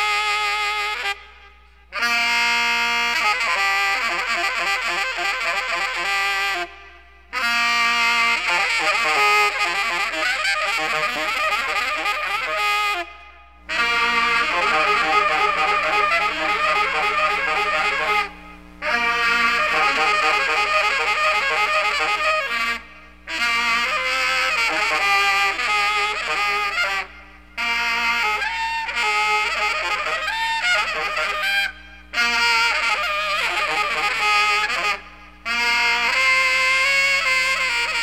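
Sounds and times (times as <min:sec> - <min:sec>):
steady low tones: 0:13.2 - 0:26.2
saxophone squealing phrases: 0:13.7 - 0:38.0.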